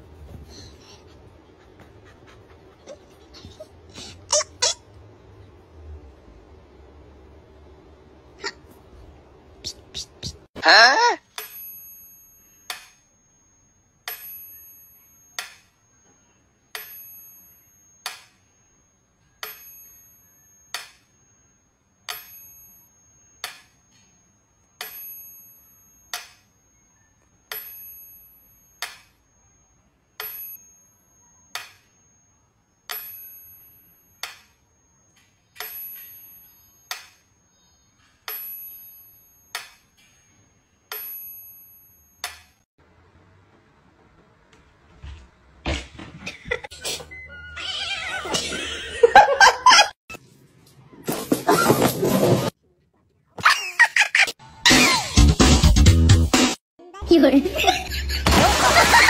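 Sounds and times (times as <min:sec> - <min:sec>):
metronome bell ringing tone: 0:11.3 - 0:42.6.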